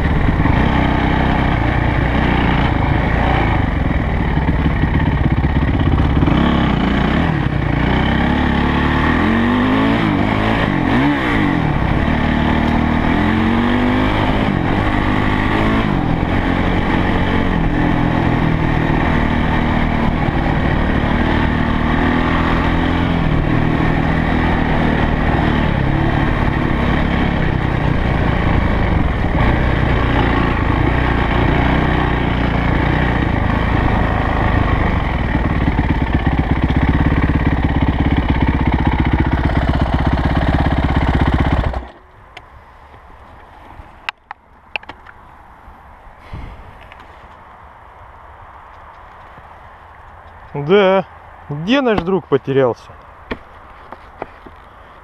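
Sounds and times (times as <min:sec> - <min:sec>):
motorcycle engine revving: 0:00.0 - 0:42.2.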